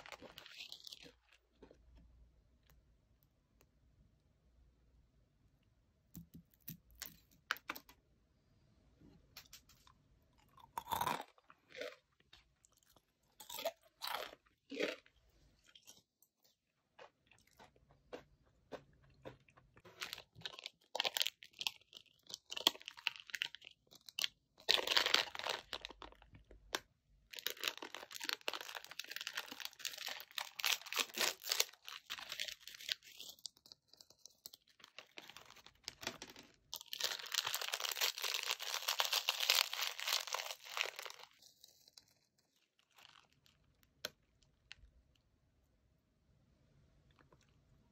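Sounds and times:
crunchy snack being chewed: 0.0s - 1.9s, 9.4s - 36.0s, 36.7s - 44.9s.

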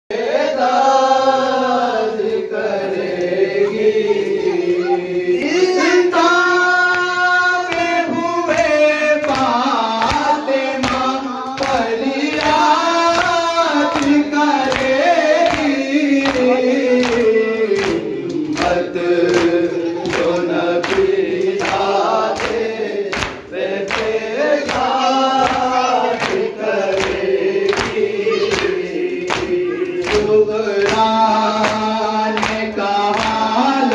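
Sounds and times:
group of men singing: 0.1s - 33.9s
man singing on microphone: 2.6s - 23.0s, 27.8s - 33.9s.

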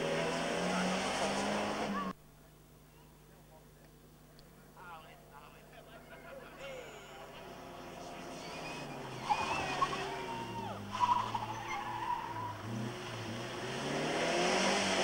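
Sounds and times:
rally car engine passing: 0.0s - 2.2s, 6.8s - 15.0s
tyre squeals: 8.2s - 12.7s.

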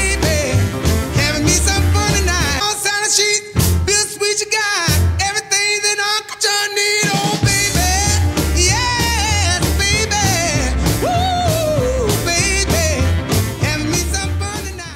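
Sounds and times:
pulsing bass beat: 0.0s - 2.6s, 7.4s - 14.9s
song with sung melody: 0.0s - 14.9s.

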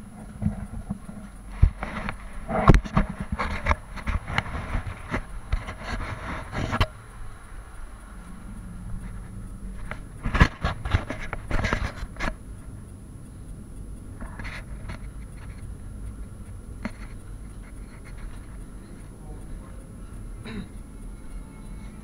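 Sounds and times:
low steady rumble: 0.0s - 22.0s
scraping and rustling: 0.2s - 7.0s, 8.9s - 12.4s.

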